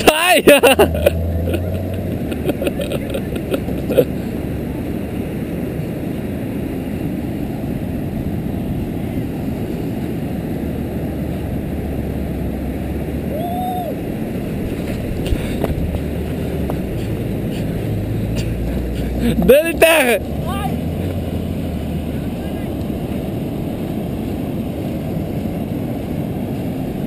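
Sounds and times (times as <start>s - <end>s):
car engine running: 0.5s - 4.0s, 14.8s - 23.7s
wind buffeting microphone: 1.7s - 19.2s.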